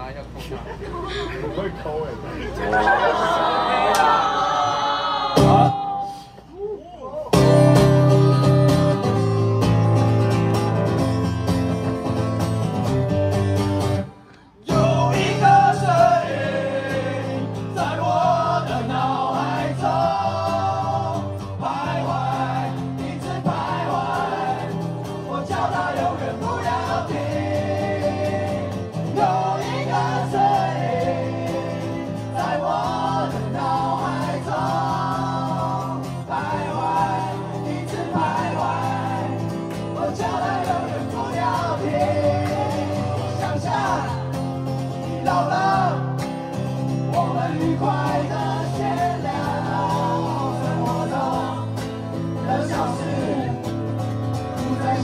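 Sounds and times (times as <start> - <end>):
acoustic guitar: 2.8 - 55.0
male choir singing: 14.6 - 46.2, 47.0 - 55.0.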